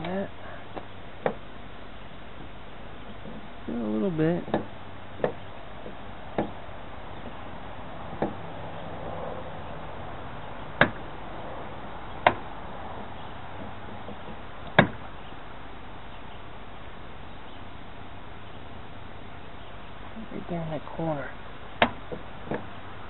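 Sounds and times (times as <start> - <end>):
fuel door knocks and clicks: 4.5 - 6.6, 8.1 - 8.4, 10.8 - 11.1, 13.6 - 15.0.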